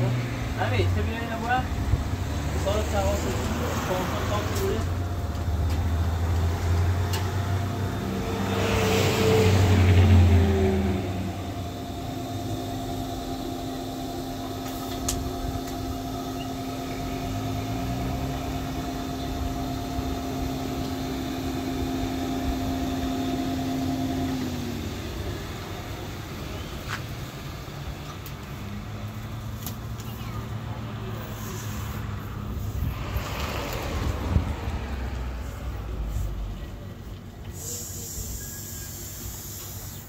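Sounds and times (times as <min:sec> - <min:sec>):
vehicle passing: 0:00.0 - 0:13.2, 0:30.6 - 0:36.9
electric blower fan humming: 0:00.0 - 0:29.9.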